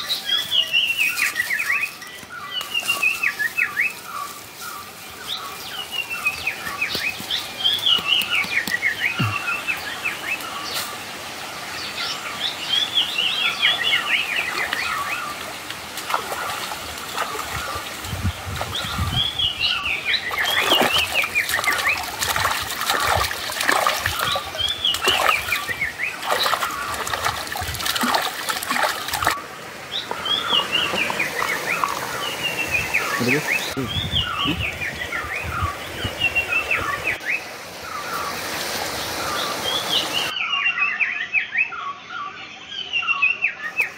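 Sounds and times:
water splashing in stream: 5.3 - 11.4, 13.2 - 33.8
bird singing falling notes: 6.0 - 10.9, 13.6 - 37.2.

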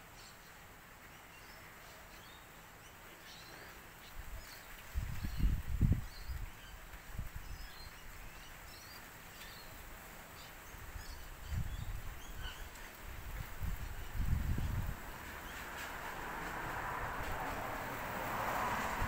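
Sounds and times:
small birds chirping: 0.0 - 16.2
wind buffeting microphone: 4.1 - 8.4, 10.8 - 19.0.

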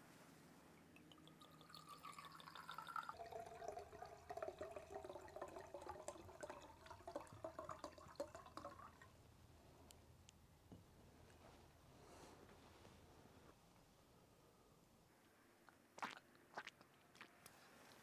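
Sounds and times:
wine pouring into a glass: 1.0 - 9.1.

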